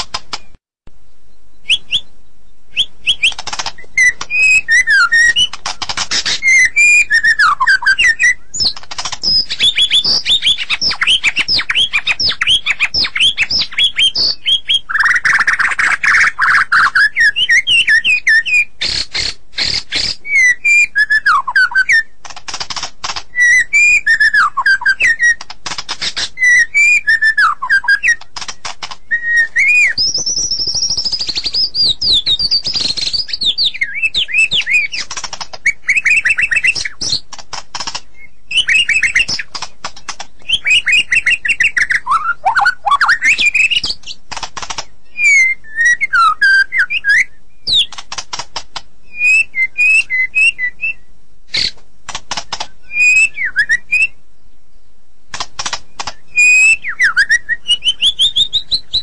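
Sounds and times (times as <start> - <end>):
bird dry clicking rattles: 0.0 - 0.6, 3.1 - 6.6, 8.6 - 13.6, 22.2 - 23.4, 25.2 - 26.4, 28.0 - 29.2, 34.3 - 38.1, 38.7 - 41.3, 43.3 - 44.9, 47.7 - 48.9, 52.1 - 52.7, 55.3 - 56.2
bird whistling song: 1.3 - 22.2, 23.2 - 37.2, 38.0 - 44.2, 45.0 - 48.0, 49.1 - 51.8, 52.5 - 54.2, 55.9 - 59.0.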